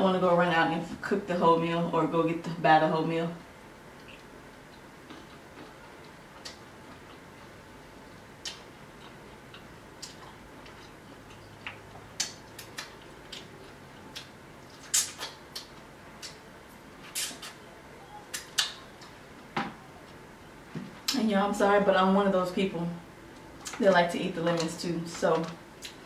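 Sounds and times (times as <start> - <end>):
wet mouth smacks: 14.2 - 16.4, 18.3 - 19.1.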